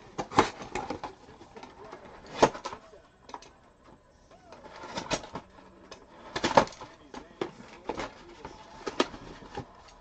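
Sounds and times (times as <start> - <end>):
cards and wrappers rustling: 4.4 - 10.0.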